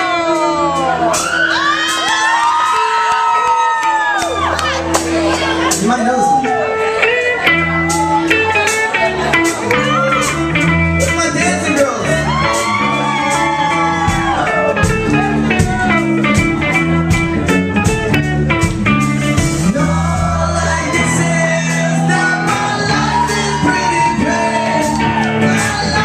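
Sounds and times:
person singing: 0:00.0 - 0:01.2, 0:19.4 - 0:26.0
rock band playing live: 0:00.0 - 0:26.0.

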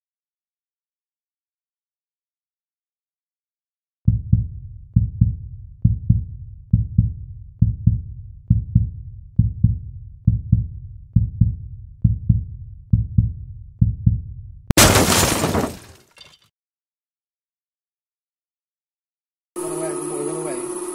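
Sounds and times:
heartbeat double thumps: 0:04.1 - 0:14.4.

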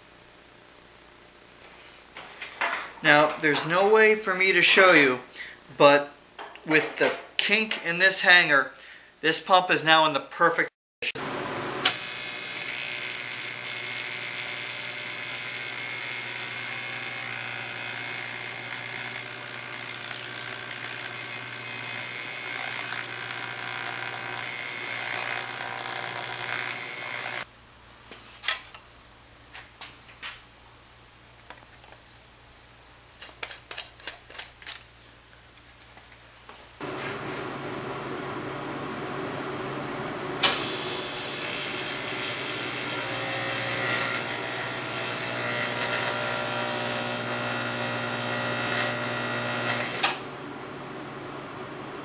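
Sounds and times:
welding arc buzzing: 0:11.8 - 0:27.5, 0:40.4 - 0:50.3
metal parts clicking and tapping: 0:33.2 - 0:35.0.

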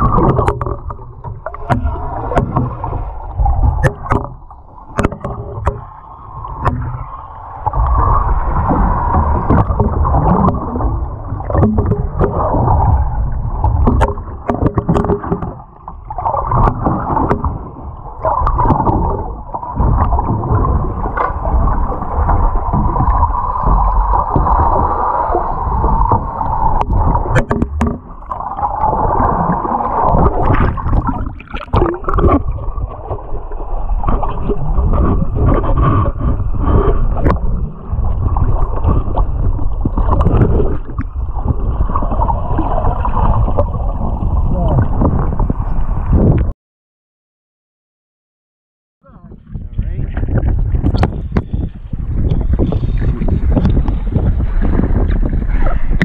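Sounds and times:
deep rumble: 0:00.0 - 0:46.5, 0:49.0 - 0:56.0
muffled underwater rushing water: 0:00.0 - 0:46.5, 0:49.0 - 0:56.0
sharp knocks and clicks: 0:03.5 - 0:05.9, 0:26.1 - 0:28.1.

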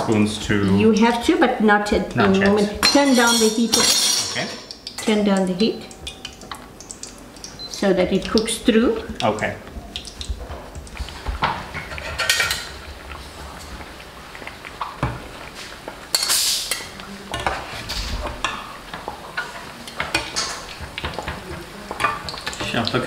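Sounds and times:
metal spoons scraping a steel pan: 0:02.8 - 0:04.5, 0:16.1 - 0:18.6.

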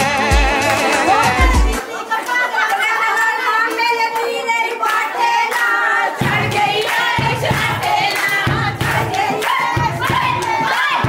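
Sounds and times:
rhythmic hand-clapping: 0:00.0 - 0:11.0
voices singing together: 0:00.0 - 0:11.0
deep drumbeat: 0:00.2 - 0:01.8, 0:06.2 - 0:10.7.

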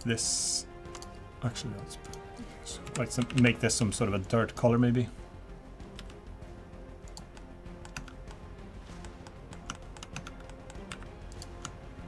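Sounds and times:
quiet background music: 0:00.0 - 0:12.0
computer keyboard key presses: 0:09.1 - 0:11.8.

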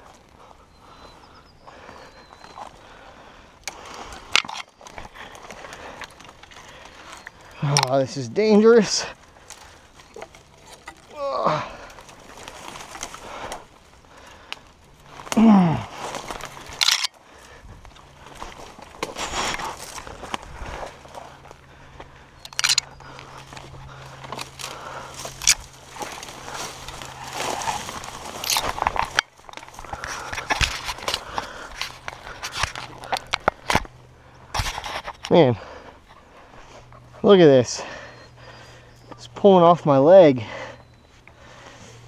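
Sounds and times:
dry brush snapping and rustling: 0:03.7 - 0:35.4
man groaning with effort: 0:11.0 - 0:12.0, 0:15.3 - 0:16.0.

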